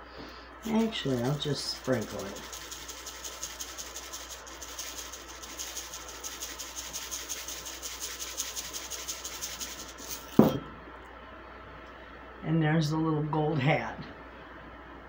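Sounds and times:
sprinkles rattling in plastic shaker: 0.6 - 10.5
shaker knocking down on surface: 0.7 - 10.7.

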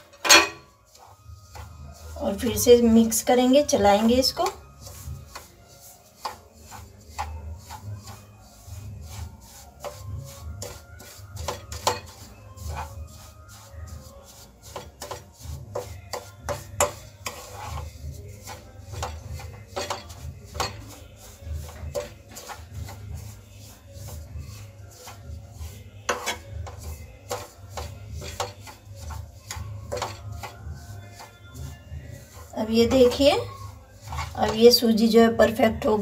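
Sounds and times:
spatula scraping a frying pan: 0.0 - 36.0.

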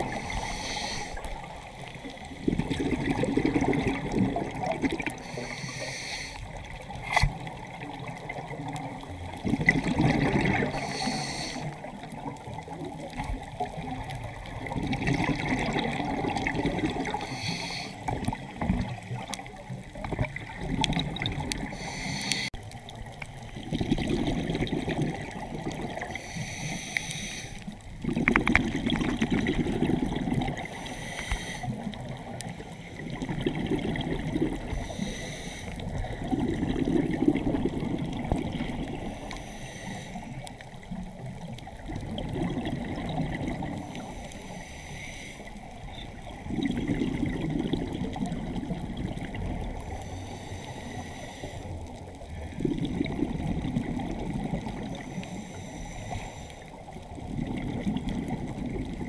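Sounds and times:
water sloshing and trickling: 6.9 - 10.8, 11.9 - 17.3.

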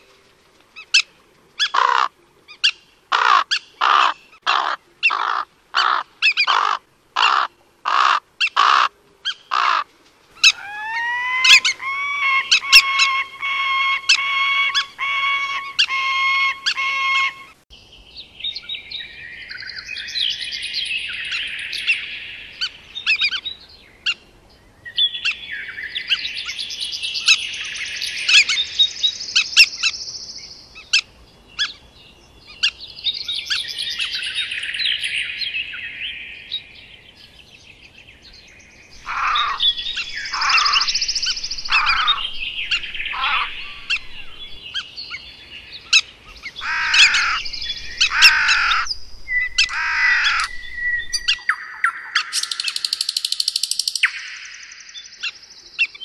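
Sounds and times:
birds chirping and chattering: 0.8 - 56.0
harsh bird calls falling in pitch: 1.6 - 17.6, 38.9 - 56.0.

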